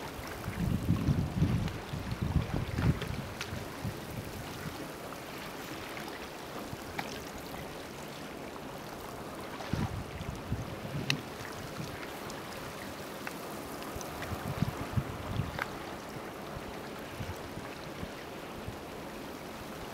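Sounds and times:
sea washing on rocky shore: 0:00.0 - 0:19.9
wind buffeting microphone: 0:00.2 - 0:04.8, 0:09.6 - 0:12.0, 0:14.2 - 0:16.2.

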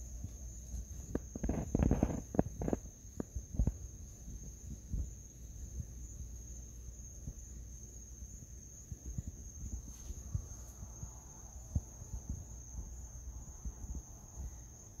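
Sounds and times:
rustling: 0:00.0 - 0:05.1, 0:08.9 - 0:12.6
crickets chirping: 0:00.0 - 0:15.0.

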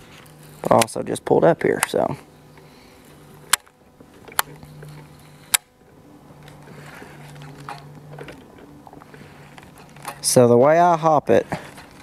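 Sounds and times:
electric trolling motor humming: 0:00.0 - 0:12.0
sharp clicks: 0:01.6 - 0:02.0.

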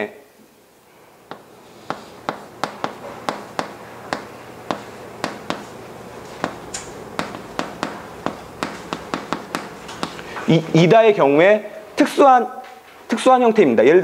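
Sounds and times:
chalk tapping on chalkboard: 0:01.3 - 0:10.6.

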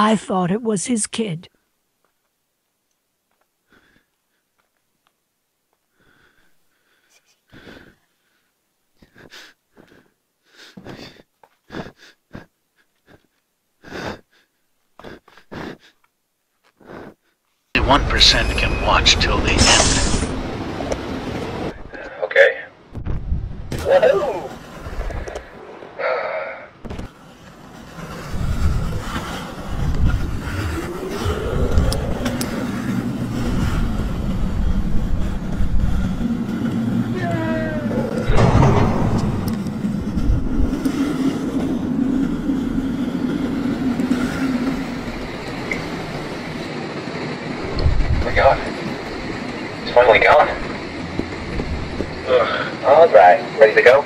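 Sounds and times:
person breathing raspily: 0:03.6 - 0:04.5, 0:05.9 - 0:17.4
low mechanical rumble: 0:28.2 - 0:52.8
whine rising in pitch: 0:29.8 - 0:40.9.

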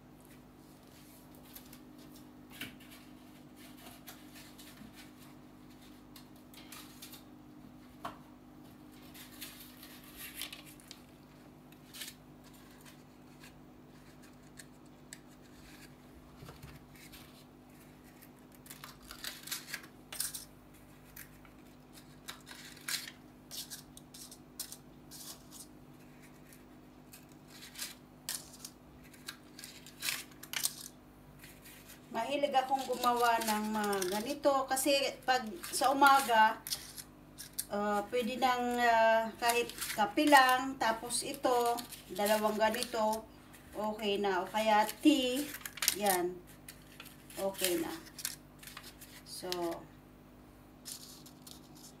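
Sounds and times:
low steady hum: 0:00.0 - 0:52.0
paper liners clattering in tin: 0:32.6 - 0:34.4, 0:44.8 - 0:49.8, 0:50.8 - 0:52.0.

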